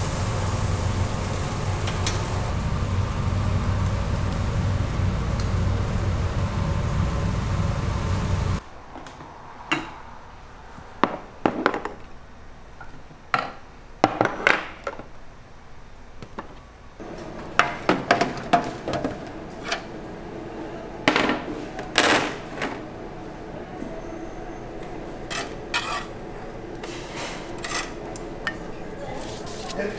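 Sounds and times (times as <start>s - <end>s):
loud rushing noise: 0.0s - 10.6s.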